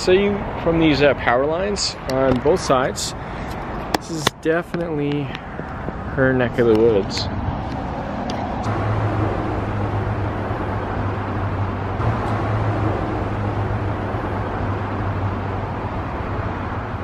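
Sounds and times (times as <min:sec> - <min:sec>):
road traffic noise: 0:00.0 - 0:17.0
low engine hum: 0:05.0 - 0:17.0.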